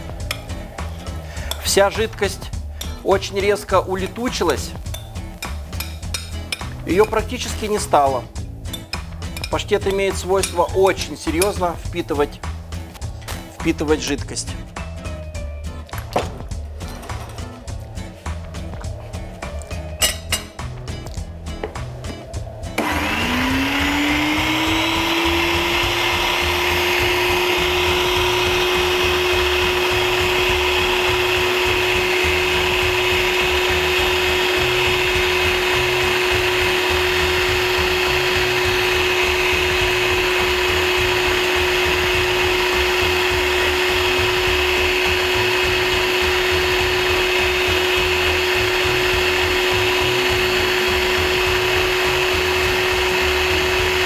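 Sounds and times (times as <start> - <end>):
electric meat grinder motor: 22.8 - 54.0.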